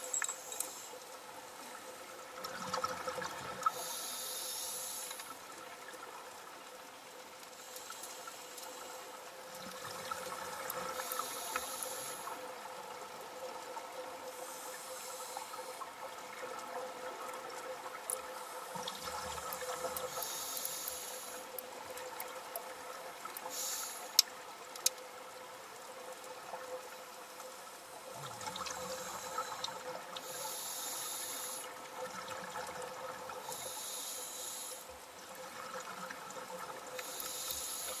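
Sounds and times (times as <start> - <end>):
regulator exhaled bubbles hissing: 23.5 - 24.2.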